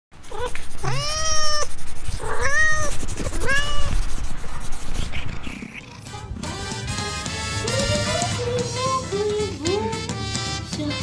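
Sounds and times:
cat meowing: 0.2 - 4.1.

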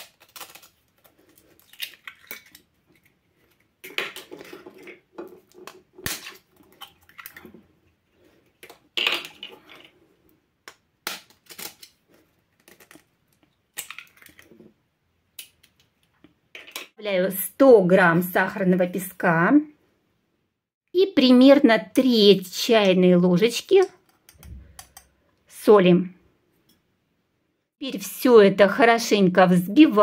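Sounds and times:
eggshells crackling: 0.0 - 7.6.

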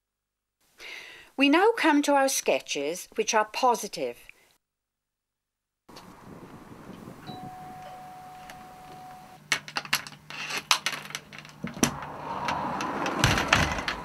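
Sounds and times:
doorbell tone: 7.2 - 9.4
door chain rattling: 9.6 - 14.0
door thuds: 12.8 - 14.0.

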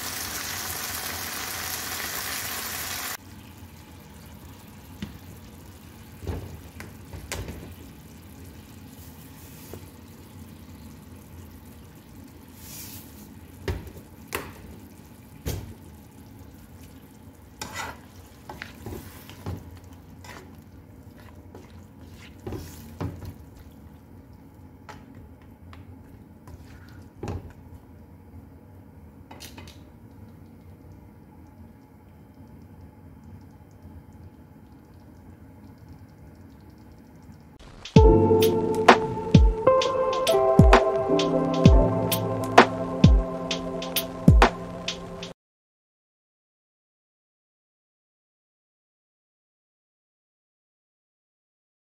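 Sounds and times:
sauce bubbling and frying: 0.0 - 25.6.

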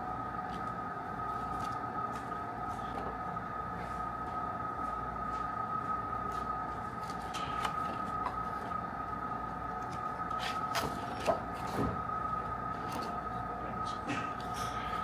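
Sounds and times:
high-pitched hum: 0.0 - 15.0
laminated pages rustling: 0.4 - 3.1.

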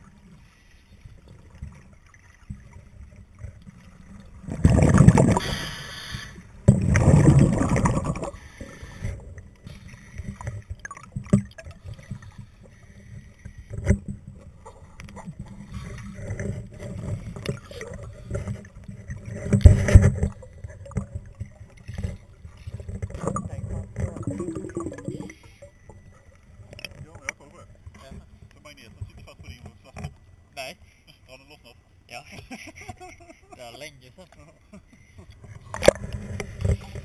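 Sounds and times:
water noise: 0.0 - 37.0
diver exhaling underwater bubbles: 4.4 - 9.2, 24.0 - 25.4.

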